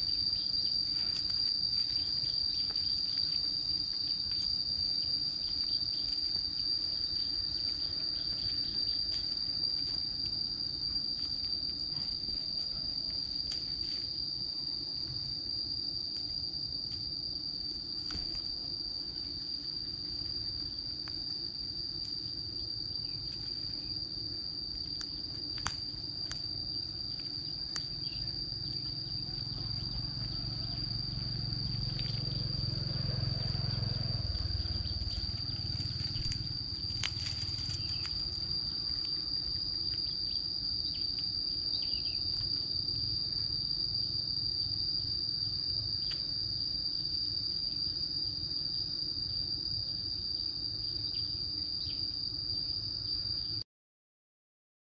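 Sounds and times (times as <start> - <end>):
insects droning: 0.0 - 53.6
footsteps on dry leaves: 34.2 - 39.1.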